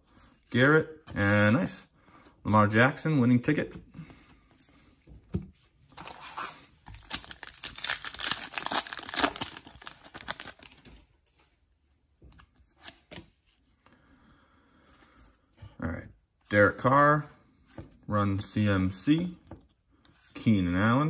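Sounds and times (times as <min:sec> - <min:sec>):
foil wrapper tearing and crinkling: 0:06.9 - 0:10.8.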